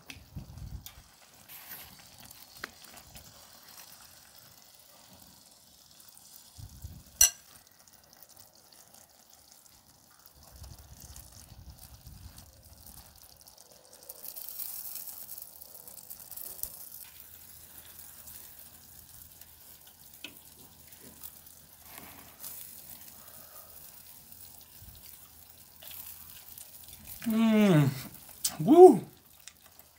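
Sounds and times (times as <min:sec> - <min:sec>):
food sizzling on grill: 0:00.0 - 0:29.9.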